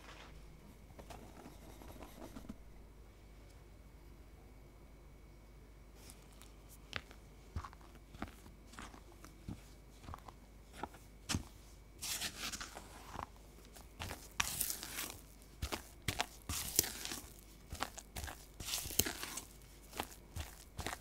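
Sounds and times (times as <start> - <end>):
spatula scraping batter in bowl: 14.0 - 21.0.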